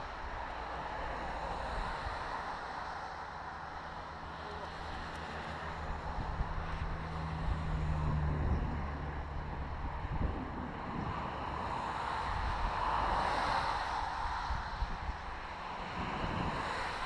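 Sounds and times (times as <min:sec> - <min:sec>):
car passing: 0:00.0 - 0:17.0
road noise: 0:00.0 - 0:17.0
wind rushing over microphone: 0:04.8 - 0:17.0.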